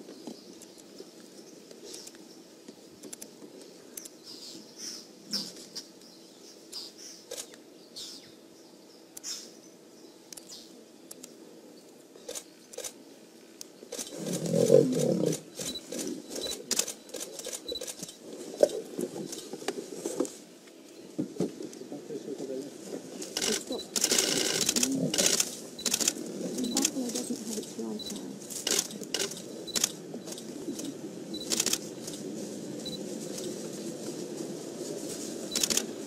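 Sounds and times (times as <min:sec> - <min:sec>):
scuffling in dry dirt: 0:13.8 - 0:36.0
lion growling: 0:14.1 - 0:16.2, 0:23.4 - 0:27.0.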